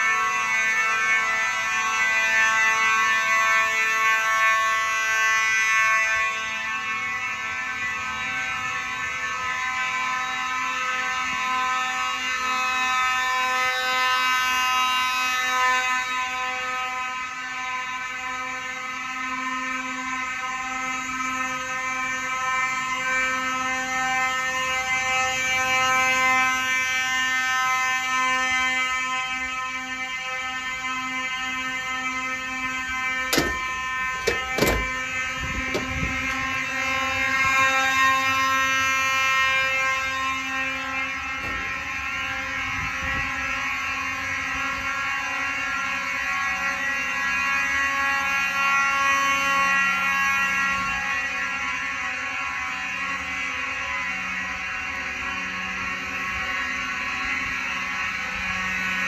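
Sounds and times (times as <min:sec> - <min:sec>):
fire alarm horns: 0:00.0 - 0:59.0
lower-toned alarm horn: 0:00.0 - 0:59.0
sharp knocks: 0:33.3 - 0:35.0.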